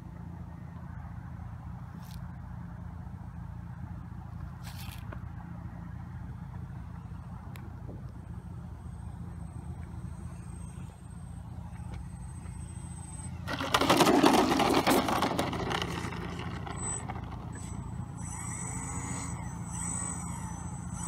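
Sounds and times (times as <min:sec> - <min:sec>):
model plane scraping on asphalt: 0:04.6 - 0:05.2, 0:09.8 - 0:21.0.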